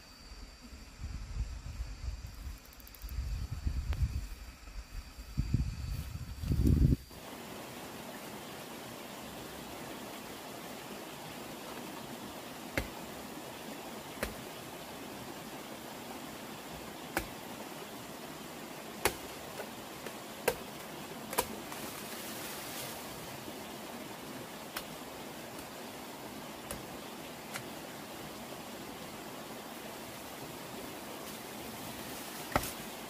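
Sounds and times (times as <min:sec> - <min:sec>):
steady background hiss: 0:00.0 - 0:33.0
blade chopping bamboo: 0:12.7 - 0:13.1, 0:14.2 - 0:14.5, 0:17.1 - 0:17.5, 0:19.0 - 0:21.8, 0:26.6 - 0:26.9, 0:32.5 - 0:32.9.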